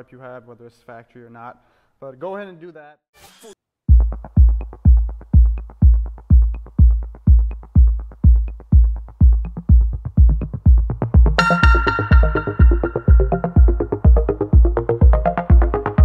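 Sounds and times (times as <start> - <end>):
electronic music with kick drum: 3.9 - 16.0
sustained synth chords: 11.4 - 16.0.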